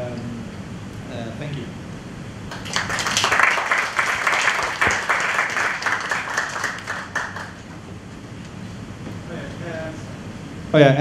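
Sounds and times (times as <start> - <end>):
audience applauding: 2.5 - 7.7.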